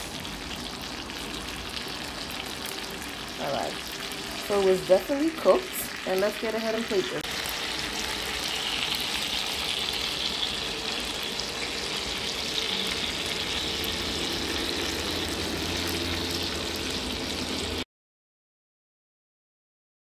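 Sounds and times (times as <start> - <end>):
chicken sizzling in a skillet: 0.0 - 17.8
low hum: 7.3 - 17.8.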